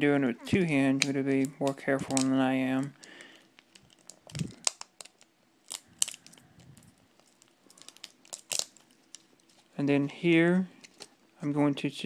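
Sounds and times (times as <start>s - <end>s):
tape peeling crinkle: 0.9s - 9.8s, 10.8s - 11.2s.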